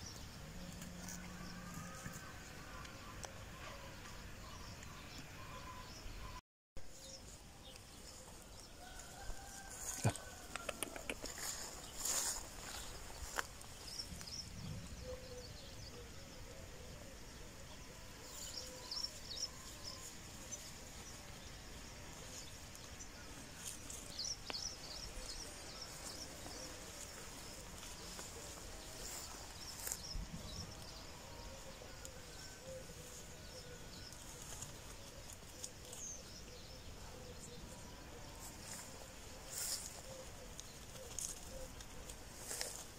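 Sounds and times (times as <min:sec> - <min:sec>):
small birds chirping: 0:09.4 - 0:42.9
deer snapping and rustling grass: 0:09.7 - 0:14.0, 0:22.2 - 0:30.0, 0:33.1 - 0:36.4, 0:38.5 - 0:42.9.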